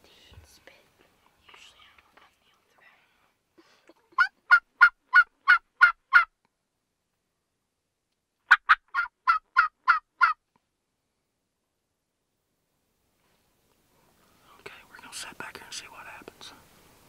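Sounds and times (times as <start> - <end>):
turkey call yelping: 4.2 - 6.3, 8.5 - 10.4.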